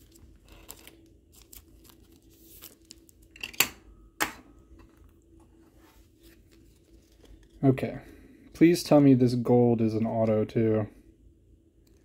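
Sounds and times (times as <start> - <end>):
cards rustling and sliding: 0.0 - 3.3, 4.8 - 7.7.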